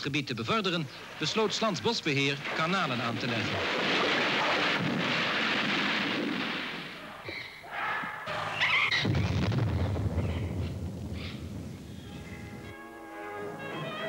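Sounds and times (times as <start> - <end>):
dynamite blasts: 1.0 - 7.2, 8.9 - 12.1.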